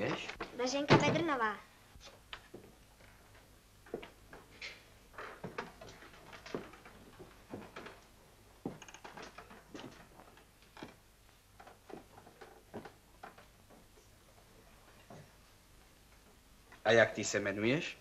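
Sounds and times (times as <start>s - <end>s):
taps and knocks on wooden desks: 3.8s - 4.6s, 5.3s - 11.0s, 11.6s - 14.0s.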